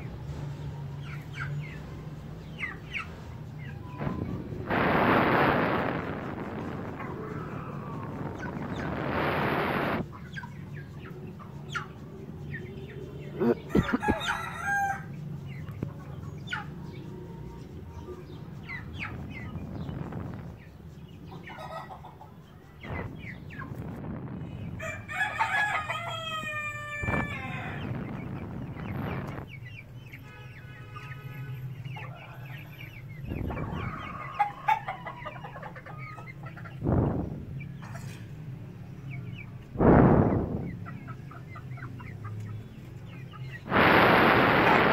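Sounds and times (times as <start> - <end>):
chickens clucking: 0.0 - 44.9
rushing noise: 4.0 - 10.1, 22.8 - 25.3, 39.8 - 40.8, 43.6 - 44.9
young cockerel crowing: 13.4 - 15.1, 24.8 - 27.9.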